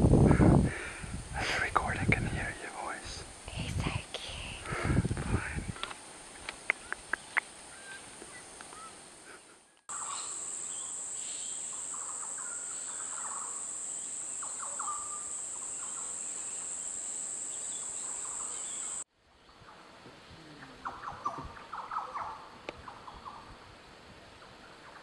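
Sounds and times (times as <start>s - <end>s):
bird calls: 6.6s - 23.5s.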